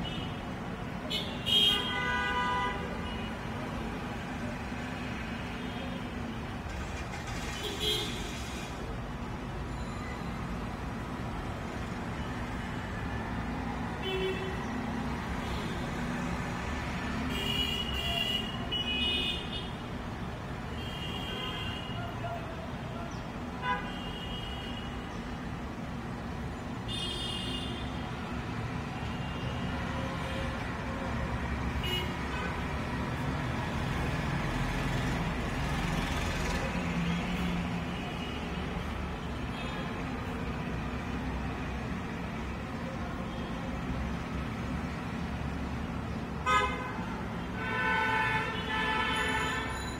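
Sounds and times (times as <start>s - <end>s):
street traffic: 0.0s - 49.9s
vehicle horns tooting: 46.4s - 49.9s.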